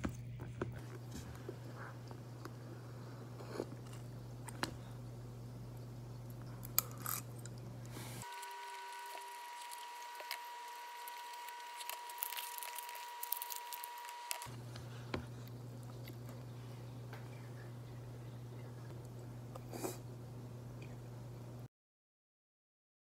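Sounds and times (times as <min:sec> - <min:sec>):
low steady hum: 0:00.0 - 0:21.7
plastic packet crinkling: 0:08.3 - 0:14.5.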